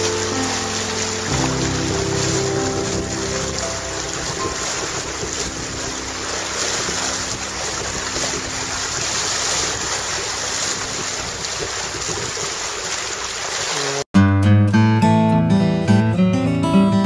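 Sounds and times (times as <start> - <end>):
wind buffeting microphone: 0.0 - 13.4
sea water rushing: 0.0 - 14.1.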